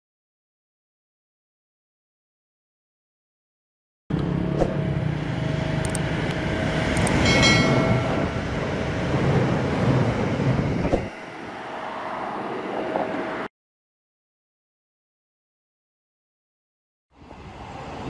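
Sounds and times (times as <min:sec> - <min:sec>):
electric train passing: 0:04.1 - 0:13.5, 0:17.2 - 0:18.0
sharp clicks: 0:05.8 - 0:06.0, 0:07.0 - 0:07.2
high ringing tone: 0:07.0 - 0:08.8.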